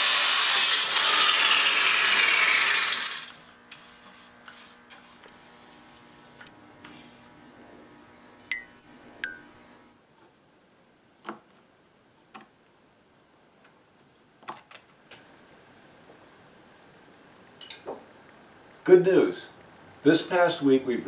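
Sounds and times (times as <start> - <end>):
faint hum: 3.3 - 10.0.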